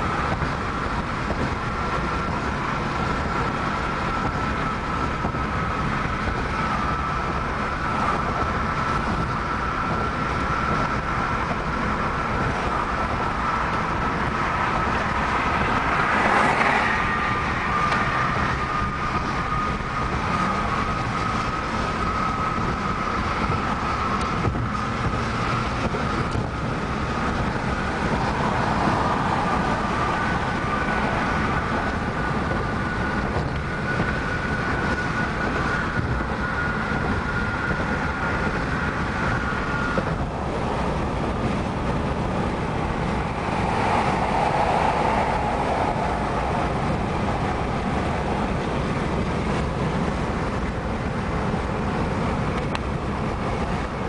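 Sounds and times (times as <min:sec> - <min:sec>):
car road and wind noise: 0:00.0 - 0:54.0
car passing alongside: 0:11.2 - 0:35.2, 0:38.7 - 0:54.0.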